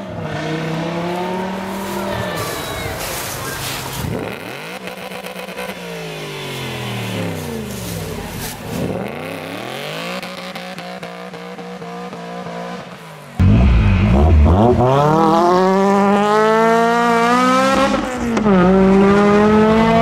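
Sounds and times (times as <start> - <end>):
loud sports car engine: 0.0 - 2.2, 3.1 - 20.0
car engine revving and idling: 4.0 - 20.0.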